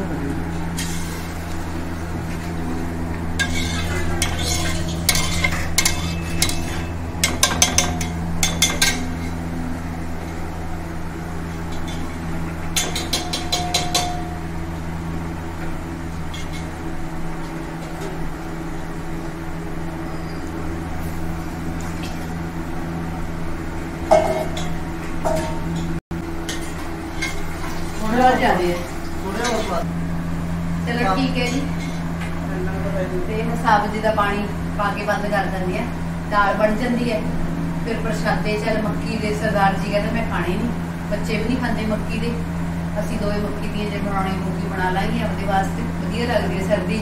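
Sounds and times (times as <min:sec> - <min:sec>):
steady low hum: 0:00.0 - 0:47.0
ladle clinking against pot: 0:03.4 - 0:09.4, 0:12.7 - 0:14.4
metal ladle scraping steel pot: 0:03.4 - 0:09.5, 0:12.8 - 0:14.4, 0:31.4 - 0:32.2
steel dishware clanking: 0:03.4 - 0:09.5, 0:11.7 - 0:14.5, 0:24.1 - 0:27.8.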